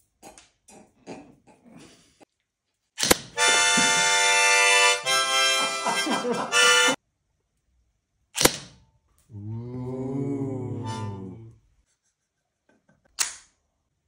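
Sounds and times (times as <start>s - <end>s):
airsoft gun shot crack: 8.4s - 8.8s
groan through harmonica: 9.3s - 11.6s.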